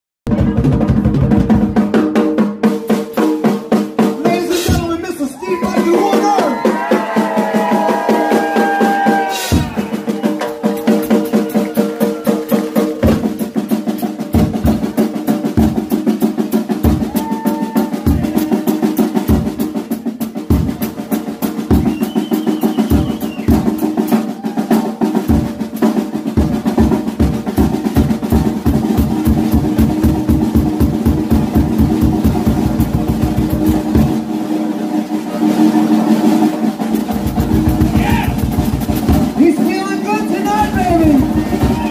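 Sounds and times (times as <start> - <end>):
snare and tom rolls: 0.3 - 41.9
bass drum kicks: 9.5 - 10.1, 37.2 - 39.4, 40.6 - 41.9.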